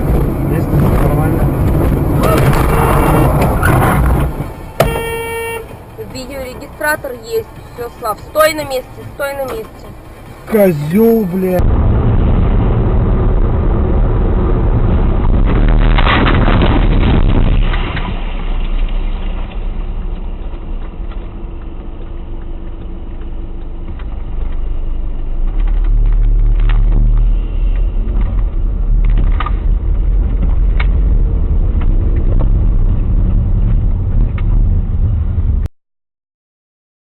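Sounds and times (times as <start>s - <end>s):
road and engine rumble: 0.0s - 35.7s.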